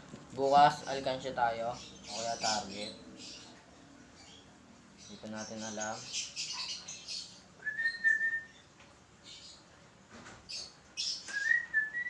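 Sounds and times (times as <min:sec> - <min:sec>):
bird chirping: 0:00.4 - 0:09.7, 0:10.4 - 0:12.0
bird whistled notes: 0:07.6 - 0:08.6, 0:11.0 - 0:12.0.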